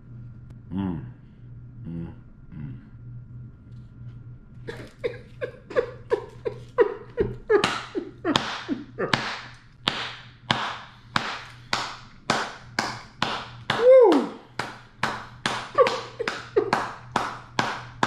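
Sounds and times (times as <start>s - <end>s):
man clapping hands: 7.6s - 18.0s.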